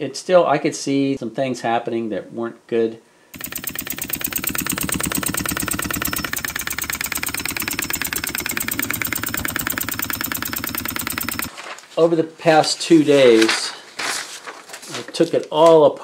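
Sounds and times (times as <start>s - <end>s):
mechanical clatter: 3.4s - 11.5s
model steam engine running fast: 3.4s - 11.5s.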